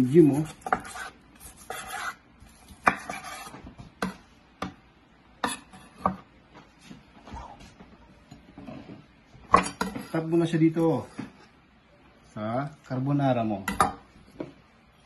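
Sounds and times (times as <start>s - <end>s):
knife slicing steak: 0.3s - 2.2s, 2.8s - 3.5s.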